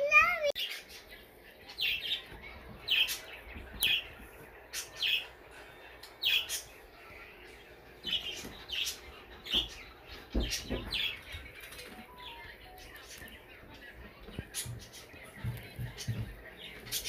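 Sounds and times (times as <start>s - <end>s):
small bird chirping: 6.0s - 17.0s.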